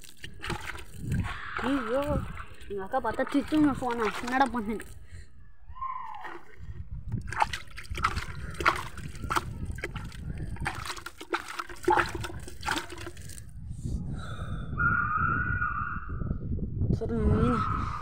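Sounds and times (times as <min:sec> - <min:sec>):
water splashing onto soil: 0:00.0 - 0:05.0, 0:07.2 - 0:13.4.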